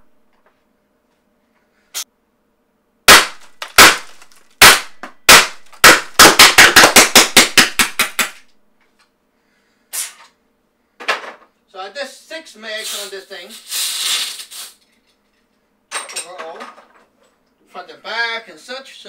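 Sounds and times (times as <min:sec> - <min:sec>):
paintball marker firing: 0:03.1 - 0:08.5.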